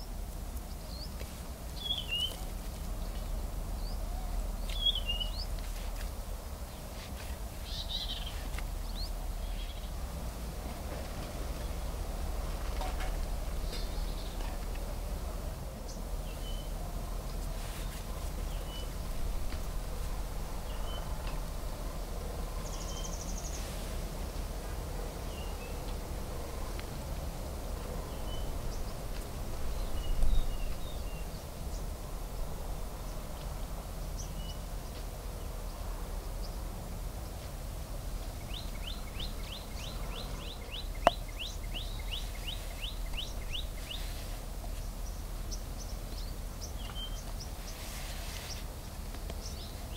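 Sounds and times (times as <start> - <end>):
birds chirping: 0.0 - 10.1, 12.7 - 23.7, 27.7 - 36.6, 38.3 - 49.9
steady low rumble: 0.0 - 34.2.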